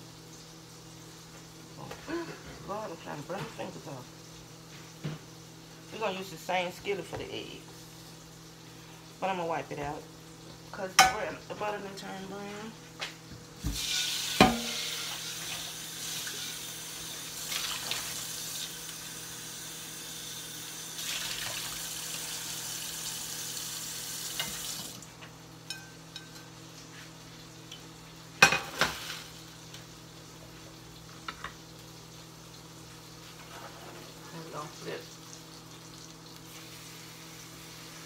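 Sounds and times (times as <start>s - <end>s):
water hissing in hot skillet: 13.6s - 25.1s, 34.0s - 38.0s
pan clanking: 14.4s - 15.0s.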